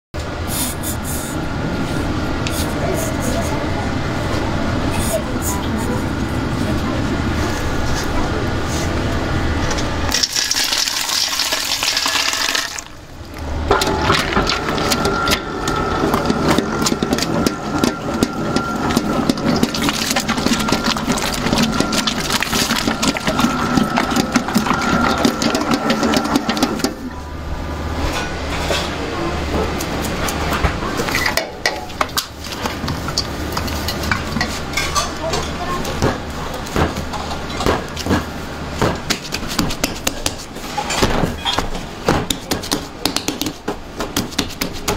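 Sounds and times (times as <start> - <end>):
mixer motor hum and whine: 0.2 - 34.7
water pouring into steel bowl: 10.1 - 13.0.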